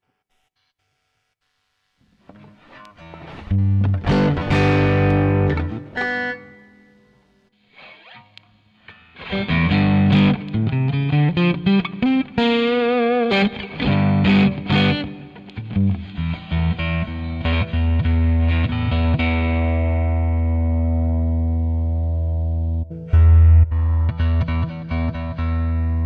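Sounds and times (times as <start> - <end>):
overdriven electric guitar: 2.1 - 26.0.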